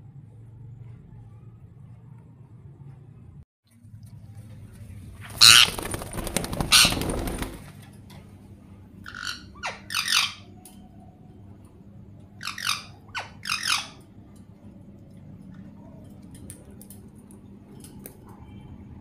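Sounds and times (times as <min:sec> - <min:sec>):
parakeet short squawks: 0:05.4 - 0:05.8
parakeet screeching: 0:05.4 - 0:05.9, 0:06.7 - 0:07.2, 0:09.0 - 0:10.6, 0:12.4 - 0:14.1.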